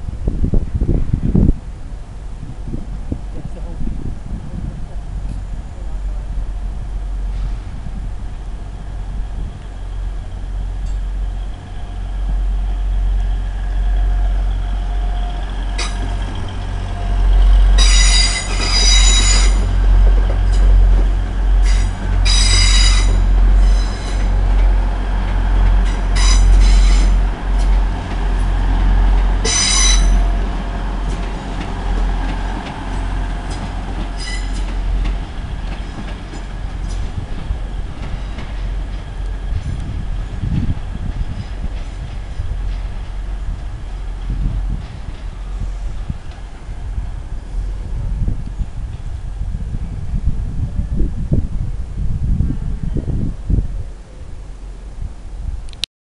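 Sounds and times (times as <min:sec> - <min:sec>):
train engines rumbling: 0:00.0 - 0:55.8
train wheels squealing: 0:13.8 - 0:19.7, 0:21.6 - 0:24.3, 0:25.9 - 0:27.2, 0:29.4 - 0:30.3, 0:34.2 - 0:34.8.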